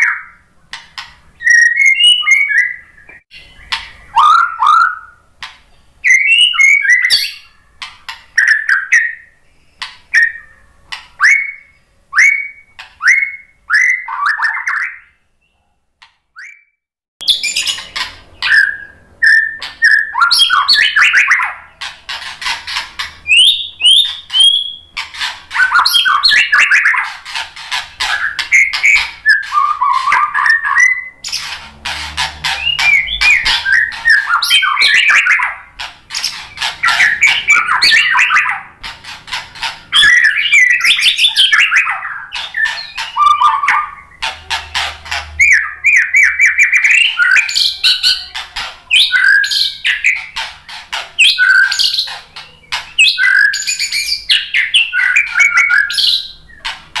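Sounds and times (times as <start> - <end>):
bird song with whistles and trills: 0.0 - 15.7, 16.4 - 31.6, 32.4 - 56.8
bird call notes: 27.8 - 50.4.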